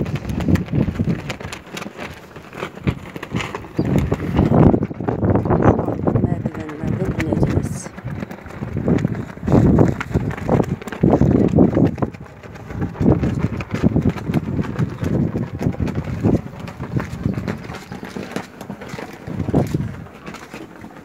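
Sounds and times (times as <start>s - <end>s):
footsteps on stone stairs: 6.7s - 21.0s.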